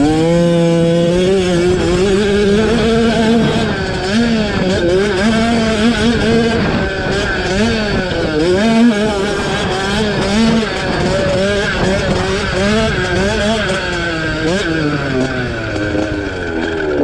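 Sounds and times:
two-stroke motocross engines racing: 0:00.0 - 0:17.0.

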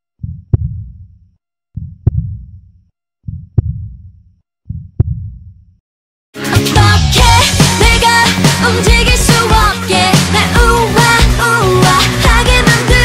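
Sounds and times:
heartbeat thumps with clicks: 0:00.2 - 0:01.2, 0:01.8 - 0:05.8
pop music with singing: 0:06.4 - 0:13.0.

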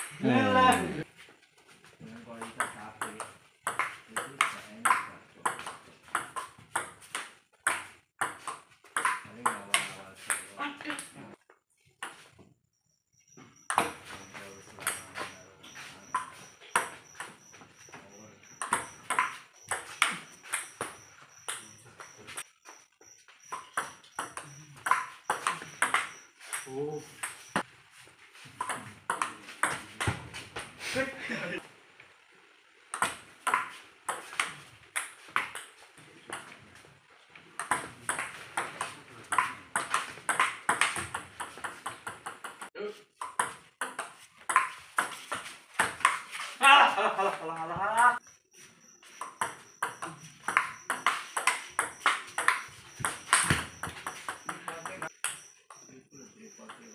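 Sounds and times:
table tennis ball hits: 0:02.4 - 0:10.5, 0:16.1 - 0:17.4, 0:18.6 - 0:22.4, 0:23.5 - 0:27.6, 0:28.5 - 0:30.7, 0:32.9 - 0:36.6, 0:37.6 - 0:46.4, 0:49.2 - 0:55.5.

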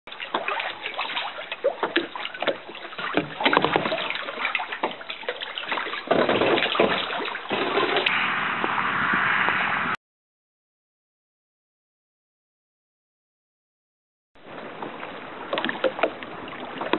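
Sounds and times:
water splashing against rock: 0:00.1 - 0:08.1
steady rushing noise: 0:08.1 - 0:10.0.

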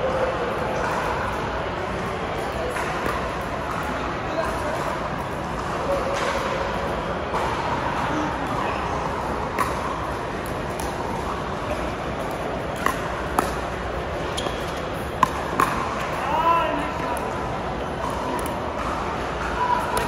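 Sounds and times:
paddles striking pickleball: 0:14.4 - 0:16.2.

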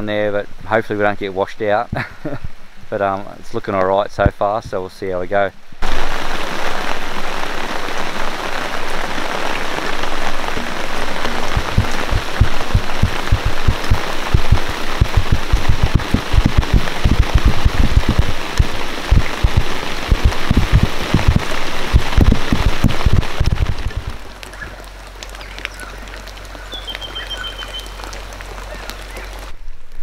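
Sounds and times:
rain hissing: 0:05.6 - 0:29.8
heavy raindrops thudding: 0:05.8 - 0:29.6.

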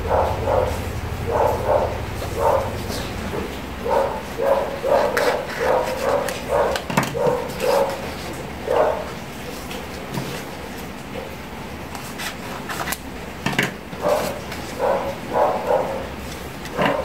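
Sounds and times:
dog barking: 0:00.0 - 0:09.2, 0:14.0 - 0:17.0.

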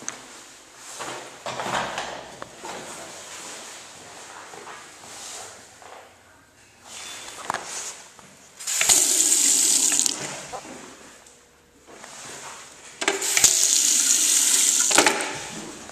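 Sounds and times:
faucet running water into sink: 0:08.6 - 0:10.4, 0:13.0 - 0:15.3.

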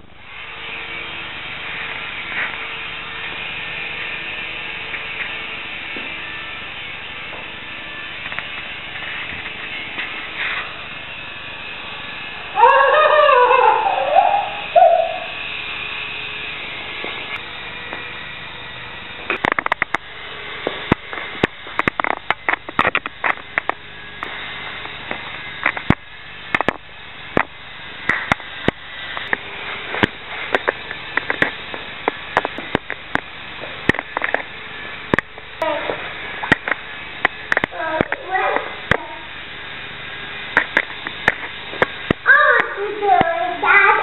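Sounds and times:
toy helicopter rotors whirring: 0:00.0 - 0:44.0
loud rising and falling call: 0:12.4 - 0:15.6
sharp clicks and knocks: 0:19.3 - 0:34.5, 0:35.1 - 0:35.5, 0:36.4 - 0:39.1, 0:40.5 - 0:42.2.

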